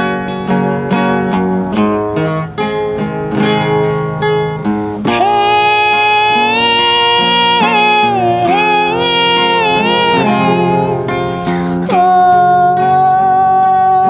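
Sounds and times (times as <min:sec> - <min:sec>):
acoustic guitar picking: 0:00.0 - 0:14.0
woman singing: 0:05.0 - 0:14.0.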